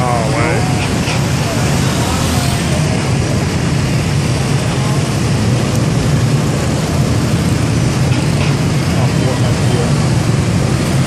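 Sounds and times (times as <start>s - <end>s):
scooters and motorbikes passing: 0.0s - 11.0s.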